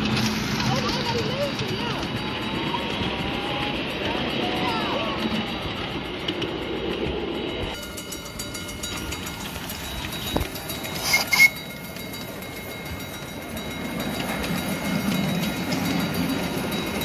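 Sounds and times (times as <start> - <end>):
model train running: 0.0 - 17.0
model train whistle toots: 11.0 - 11.6.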